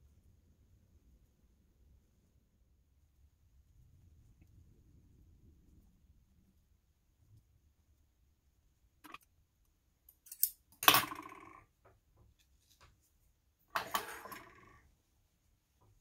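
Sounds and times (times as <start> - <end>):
scissors clattering on wooden table: 10.1 - 11.6, 13.8 - 14.8.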